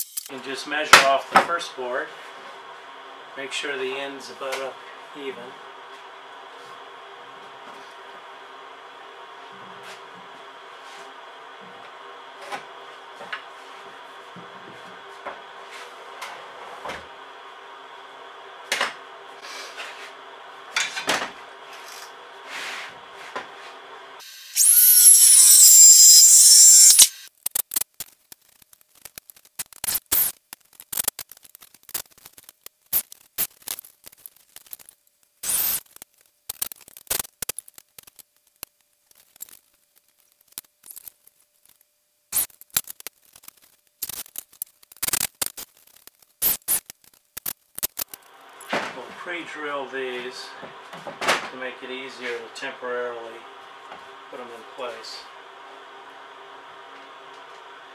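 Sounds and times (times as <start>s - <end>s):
circular saw cutting wood: 24.2s - 27.3s.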